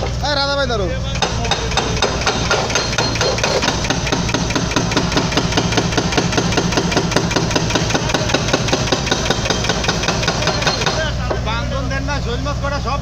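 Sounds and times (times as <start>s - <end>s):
excavator engine running: 0.0s - 13.0s
hydraulic breaker hammering concrete: 1.1s - 11.5s.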